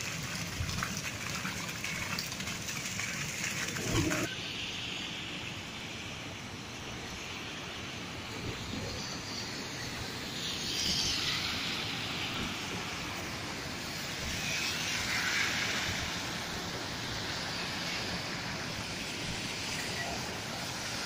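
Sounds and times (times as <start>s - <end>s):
wash of water: 0.0s - 4.3s, 10.1s - 21.0s
cars driving through water: 8.1s - 21.0s.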